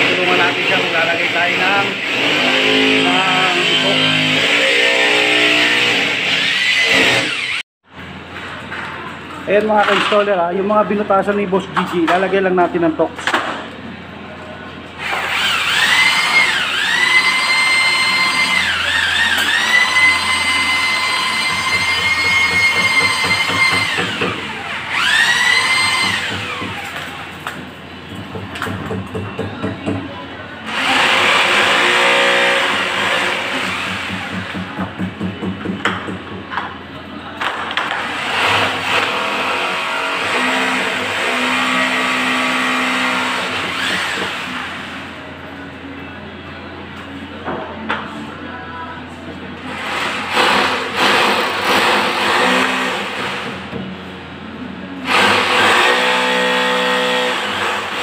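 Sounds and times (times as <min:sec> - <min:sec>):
electric drill whining: 0:01.7 - 0:07.6, 0:15.0 - 0:26.9.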